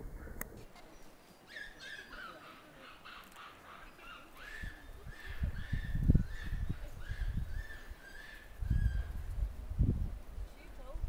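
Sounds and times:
monkey warning cries: 0:01.5 - 0:09.1.

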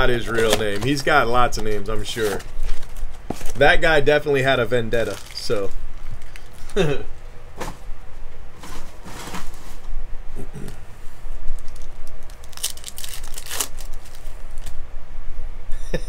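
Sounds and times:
card wrapper tearing and crinkling: 0:00.2 - 0:03.7, 0:04.9 - 0:06.8, 0:11.6 - 0:14.8.

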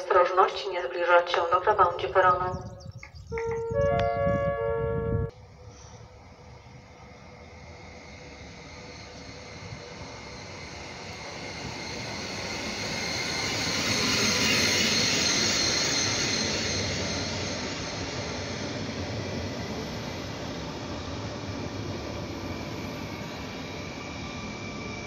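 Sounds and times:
faint high whine: 0:02.2 - 0:25.0
train pulling into platform: 0:02.2 - 0:25.0.

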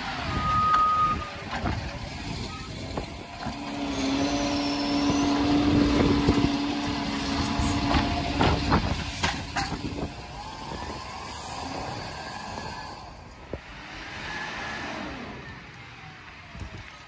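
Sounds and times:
hydraulic arm humming: 0:00.3 - 0:13.8.

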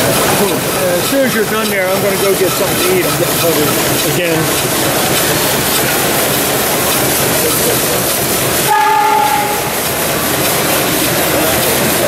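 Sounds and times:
steam engines hissing: 0:00.0 - 0:12.0
short whistle blast: 0:08.7 - 0:09.8.

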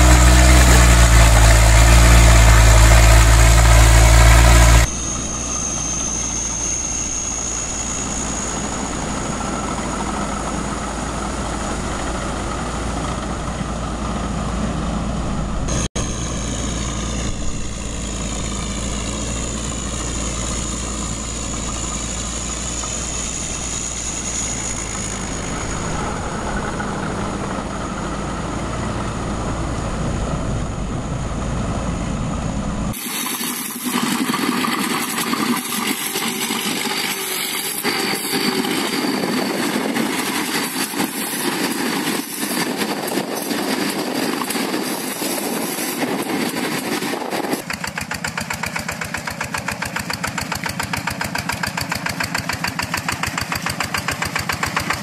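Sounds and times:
small tractor engine running: 0:00.0 - 0:55.0.

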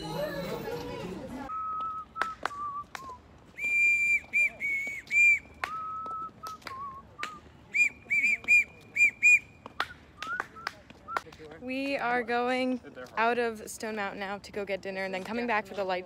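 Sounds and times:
whistle tooting: 0:01.5 - 0:11.2.

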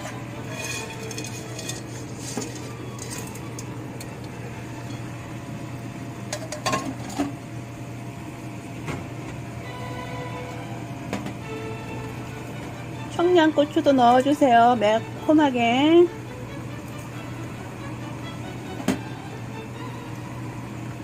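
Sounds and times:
pans and utensils clinking: 0:00.0 - 0:04.1, 0:06.3 - 0:07.4
steady low hum: 0:00.0 - 0:21.0.

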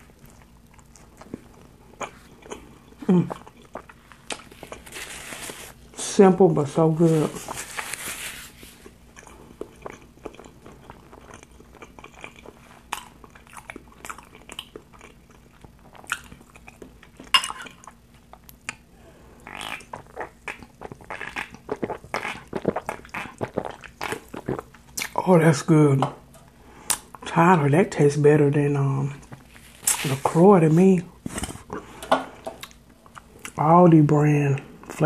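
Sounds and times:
chewing and wet mouth clicks: 0:09.1 - 0:18.9, 0:19.5 - 0:25.2
person drinking: 0:19.0 - 0:24.8.

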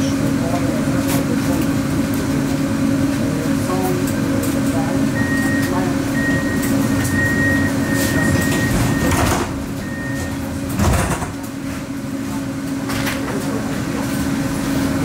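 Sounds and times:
tram equipment hum: 0:00.0 - 0:15.0
broken high beeping tone: 0:05.2 - 0:10.4
tram doors closing thud: 0:08.0 - 0:11.9.

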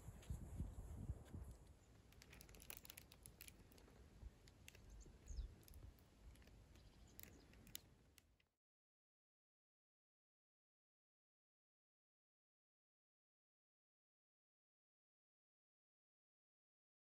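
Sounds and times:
low wind rumble: 0:00.0 - 0:01.7
light clicks: 0:02.1 - 0:08.5.

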